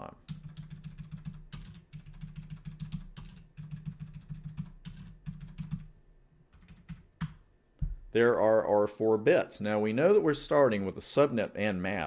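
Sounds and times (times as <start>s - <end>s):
computer keyboard typing: 0.2s - 7.4s.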